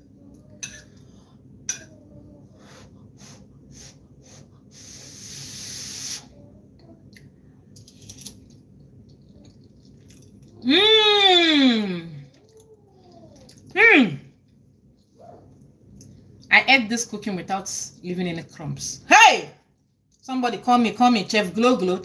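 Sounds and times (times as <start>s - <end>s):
breathy hiss of air: 2.6s - 6.3s.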